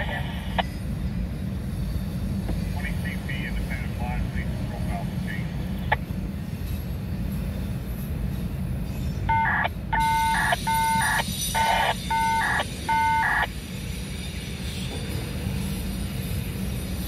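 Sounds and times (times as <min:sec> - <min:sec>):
short multi-tone beeps: 0:09.3 - 0:13.5.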